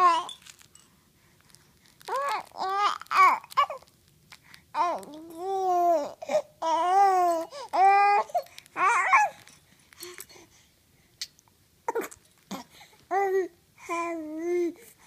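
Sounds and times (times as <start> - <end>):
baby babbling: 0.0 - 0.4, 2.1 - 3.8, 4.8 - 9.4, 11.9 - 14.8.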